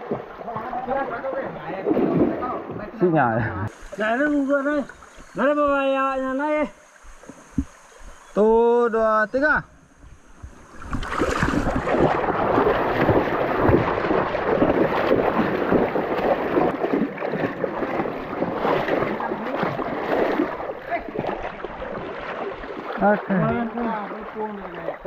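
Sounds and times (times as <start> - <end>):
river water rushing and splashing: 0.0 - 3.1, 10.0 - 25.0.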